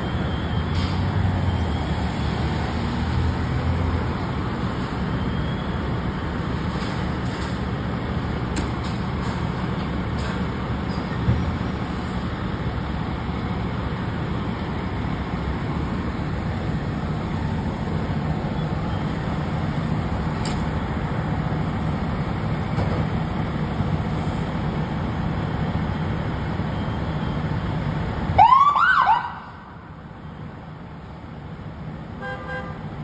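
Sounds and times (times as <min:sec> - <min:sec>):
diesel engines idling: 0:00.0 - 0:28.4
siren whoops: 0:28.4 - 0:29.6.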